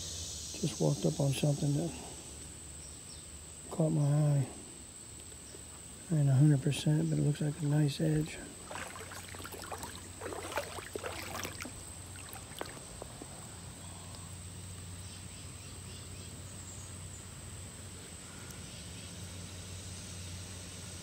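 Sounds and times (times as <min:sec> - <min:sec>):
faint hum and hiss: 0:00.0 - 0:21.0
water splashing: 0:08.1 - 0:13.0.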